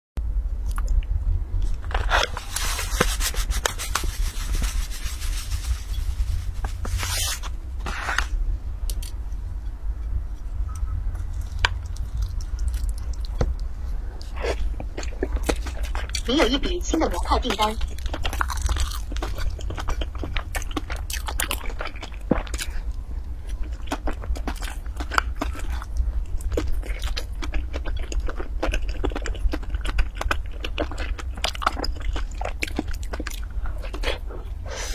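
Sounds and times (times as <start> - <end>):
steady low hum: 0.2 - 34.9
rubbing and scraping handling sounds: 1.7 - 8.4.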